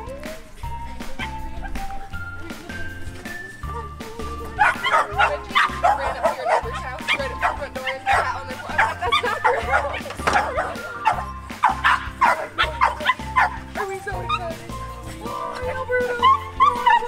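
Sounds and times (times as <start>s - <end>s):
background music with beat: 0.0s - 17.0s
dog barking: 4.6s - 13.6s.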